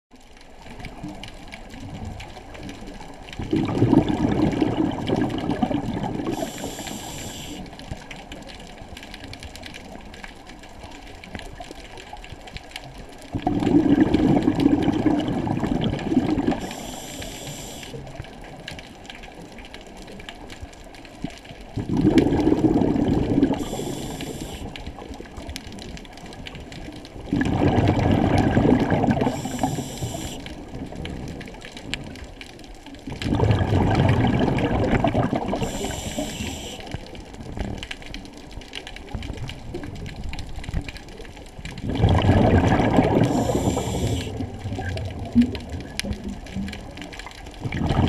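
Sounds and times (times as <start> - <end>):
underwater exhaled bubbles: 0.1 - 48.0
regulator inhale hiss: 6.2 - 7.8, 16.5 - 18.0, 23.5 - 24.8, 29.2 - 30.6, 35.6 - 37.0, 43.3 - 44.4.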